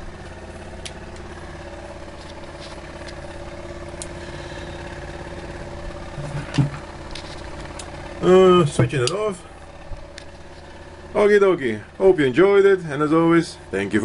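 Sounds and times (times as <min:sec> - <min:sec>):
electric motor humming and whirring: 0:00.0 - 0:14.0
brief thump: 0:06.2 - 0:06.8.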